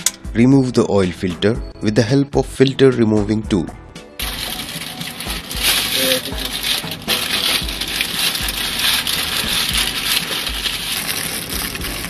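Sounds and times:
plastic bag crinkling: 4.2 - 12.0.

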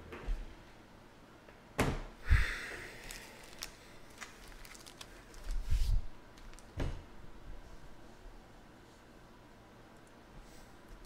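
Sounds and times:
foil wrappers crinkling: 3.0 - 6.7.

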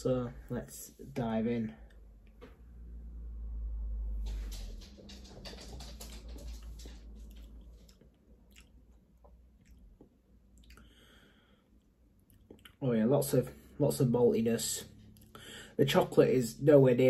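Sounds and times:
wet lip-smacking and tongue clicks: 7.3 - 10.9.

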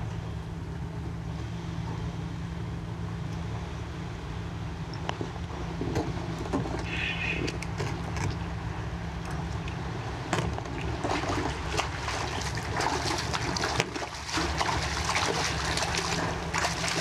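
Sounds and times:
fish thrashing and splashing: 10.4 - 17.0.

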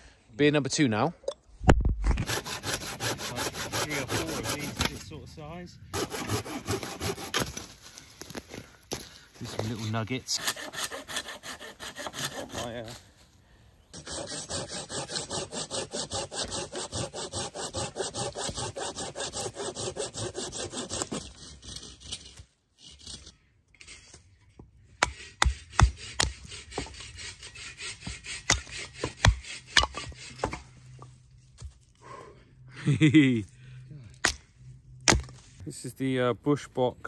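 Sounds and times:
hand saw cutting branch: 2.2 - 5.2, 5.9 - 7.7, 9.5 - 13.1, 14.0 - 24.0, 25.0 - 31.1
knife batoned through wood: 25.0 - 30.6.

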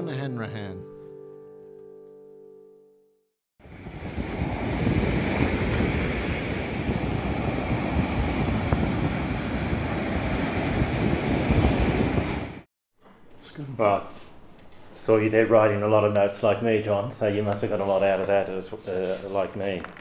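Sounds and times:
rushing wind: 3.6 - 12.7
stormy sea surf: 3.6 - 12.7.

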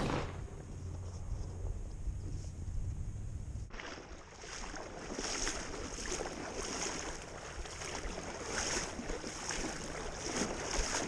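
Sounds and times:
wading through shallow water: 3.7 - 11.0.

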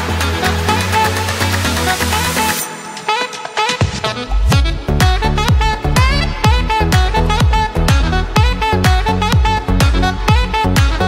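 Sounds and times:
upbeat background music: 0.0 - 11.0
kick drum: 3.6 - 11.0.

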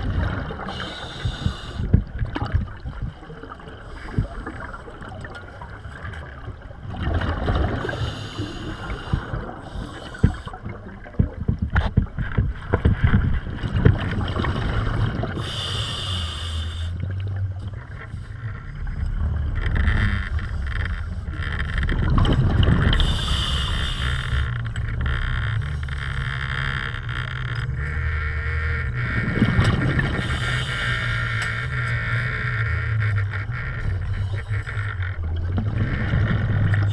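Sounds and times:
gurgling exhaled bubbles: 0.0 - 16.0, 17.0 - 24.0
regulator hissing inhale: 0.7 - 1.9, 7.9 - 10.6, 15.4 - 17.0, 23.0 - 24.5.

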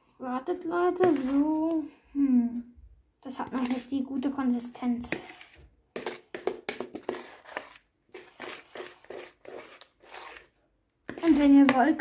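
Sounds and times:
spoon stirring sticky slime: 3.3 - 12.0.

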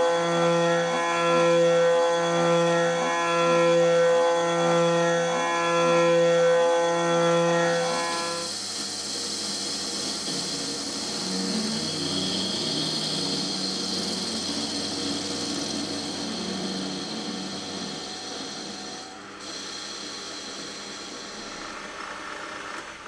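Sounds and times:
lathe motor whine: 0.0 - 23.0
cutting tool hissing on metal: 7.5 - 22.6.

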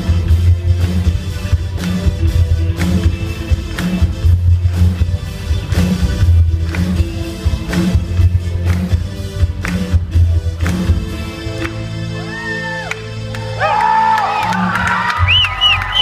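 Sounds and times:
repeating bass line: 0.0 - 12.2
drum kit: 0.0 - 16.0.

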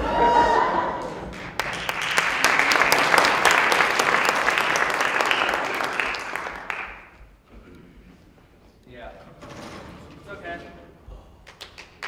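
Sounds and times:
audience applauding: 1.0 - 7.2, 11.4 - 12.0.

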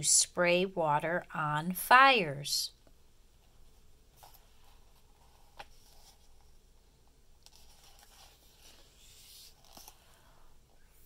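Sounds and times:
paper page turning: 7.4 - 10.2.

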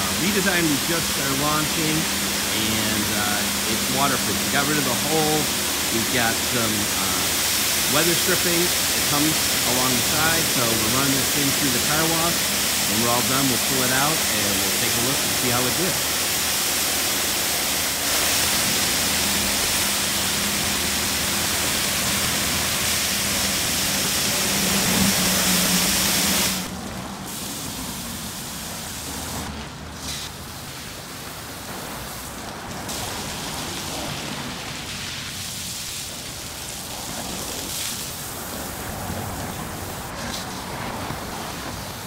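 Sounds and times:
water jets spraying car: 0.0 - 42.0
low hum: 18.0 - 28.2.

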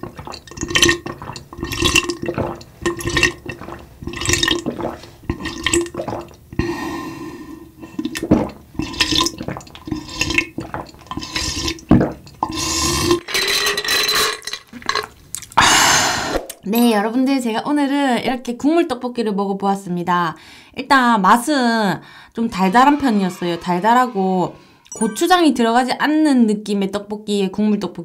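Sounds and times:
liquid moving in a glass: 0.0 - 6.6, 7.7 - 15.6
person gulping a drink: 0.0 - 13.3, 14.3 - 16.6.

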